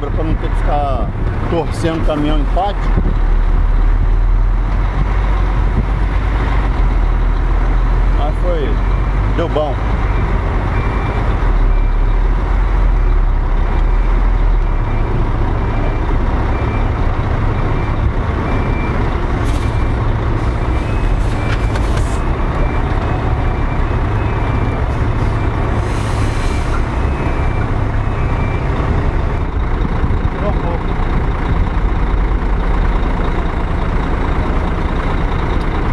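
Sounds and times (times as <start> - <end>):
diesel truck engine running: 0.0 - 35.9
reversing alarm beeping: 8.3 - 12.2, 13.9 - 28.8.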